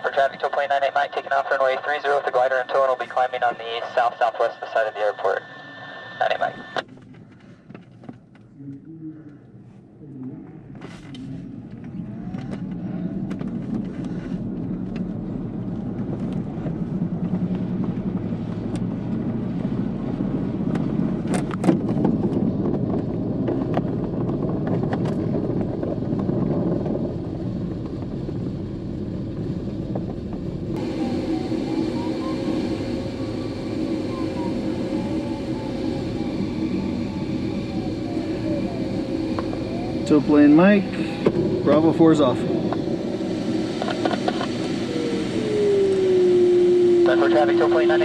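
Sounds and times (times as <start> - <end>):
tow plane engine: 0.0 - 48.0
glider wheel rumbling on runway: 10.6 - 48.0
rushing air: 23.1 - 47.4.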